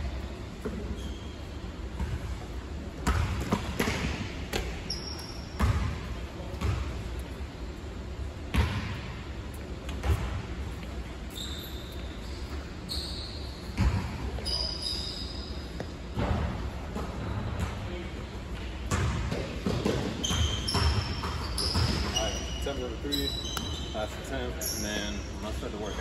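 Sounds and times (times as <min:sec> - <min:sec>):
basketball bouncing on gym floor: 0:00.2 - 0:01.3, 0:01.9 - 0:07.2, 0:08.5 - 0:09.3, 0:09.9 - 0:10.9, 0:13.6 - 0:14.8, 0:15.6 - 0:22.6.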